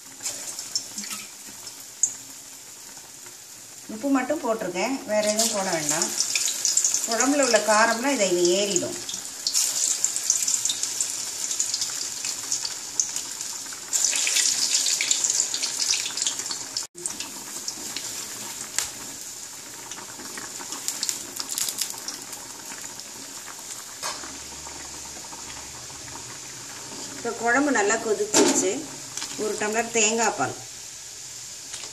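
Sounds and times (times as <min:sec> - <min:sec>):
food sizzling in hot oil: 0:00.0 - 0:31.9.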